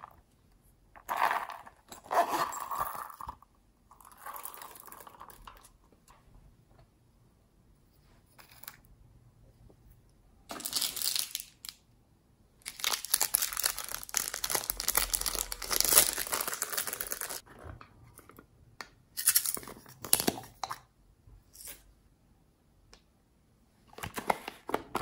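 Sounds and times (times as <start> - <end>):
plastic packaging crinkling and tearing: 12.6 - 17.4.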